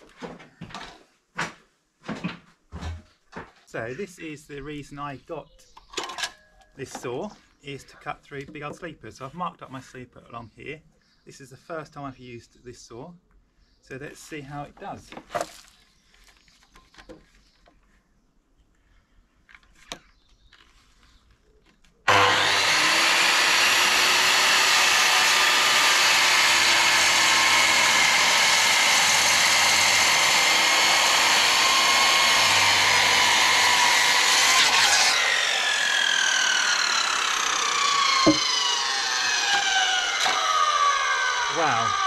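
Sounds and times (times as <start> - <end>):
circular saw cutting timber: 22.1 - 42.0
saw blade winding down: 22.1 - 42.0.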